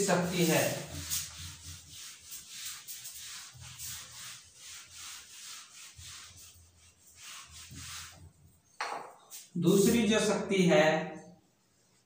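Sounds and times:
eraser rubbing whiteboard: 0.0 - 8.6.

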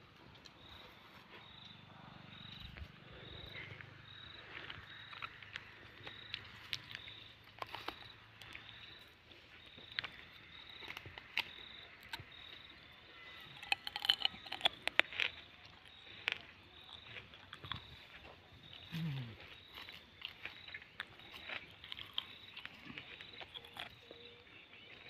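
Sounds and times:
insects chirping: 0.0 - 25.0.

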